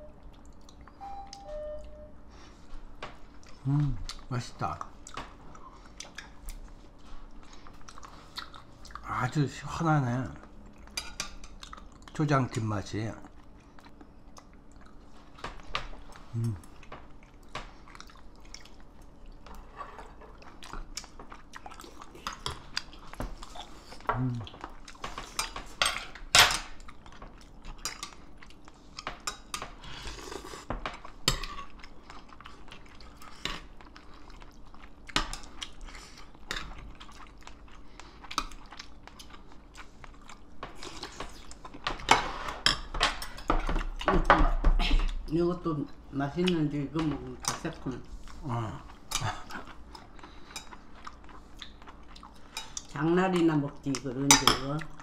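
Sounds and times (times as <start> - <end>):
chewing: 0.2 - 1.0, 3.2 - 9.1, 10.4 - 12.2, 13.2 - 25.7, 26.7 - 42.1, 48.1 - 53.0.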